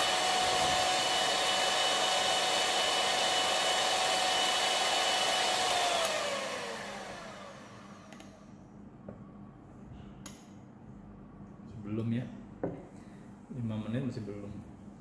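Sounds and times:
electric mixer motor whine: 0:00.0 - 0:08.4.

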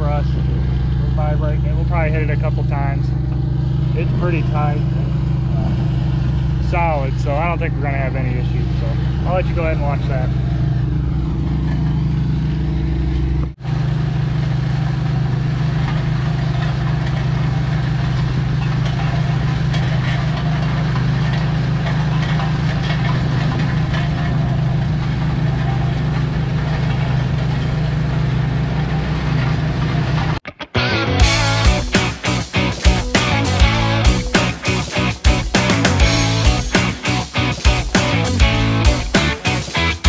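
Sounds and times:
compaction roller engine running: 0:00.0 - 0:30.4, 0:31.2 - 0:40.0.

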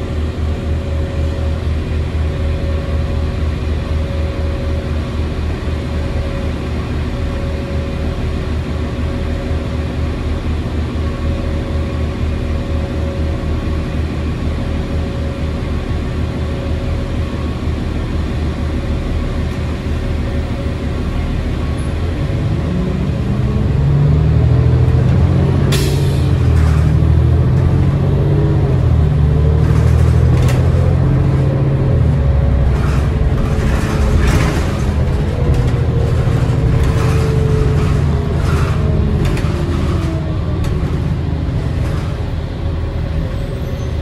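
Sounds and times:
bus diesel engine under load: 0:00.0 - 0:44.0
drivetrain whine: 0:00.0 - 0:44.0
bus body rattles: 0:24.7 - 0:44.0.

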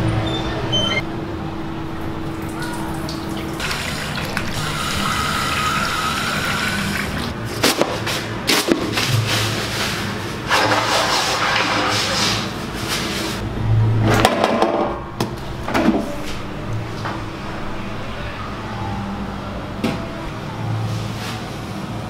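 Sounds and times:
water rushing through fixture: 0:02.0 - 0:07.4.

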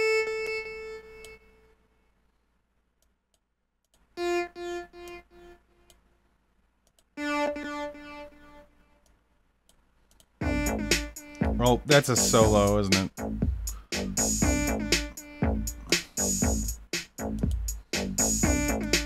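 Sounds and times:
synthesizer notes with echo: 0:07.2 - 0:08.7, 0:10.4 - 0:17.8, 0:18.4 - 0:19.0
synthesizer chord: 0:10.4 - 0:13.4, 0:14.0 - 0:17.5, 0:18.2 - 0:19.0.

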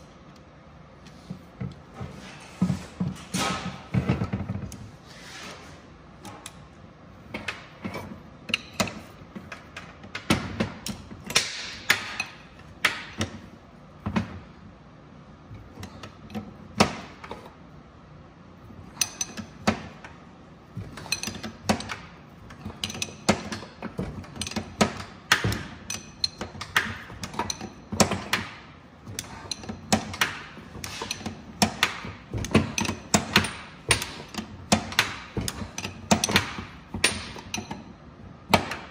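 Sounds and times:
wrenches clicking and scraping on metal: 0:07.3 - 0:14.4, 0:15.6 - 0:17.6, 0:18.6 - 0:38.9.

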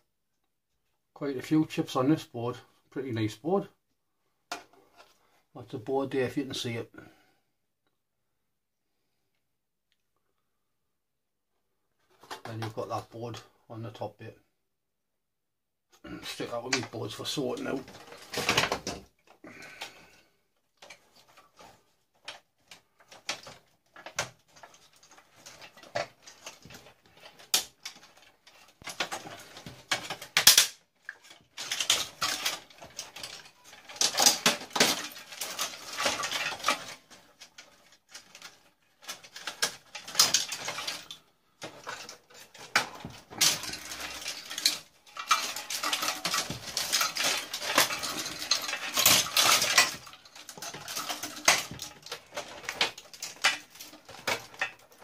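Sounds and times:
metallic clattering of tools: 0:20.8 - 0:55.0.

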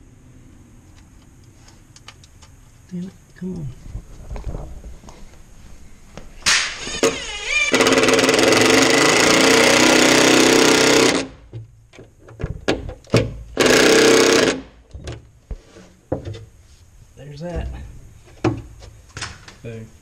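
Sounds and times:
impact driver hammering screws: 0:06.5 - 0:11.3, 0:13.6 - 0:14.7.

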